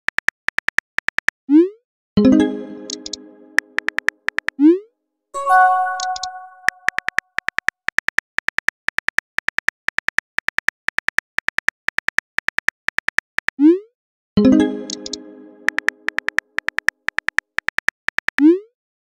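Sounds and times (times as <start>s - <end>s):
keyboard typing clicks: 2.8s - 4.5s, 5.4s - 7.7s, 14.8s - 18.5s
short electronic chime: 5.4s - 6.9s.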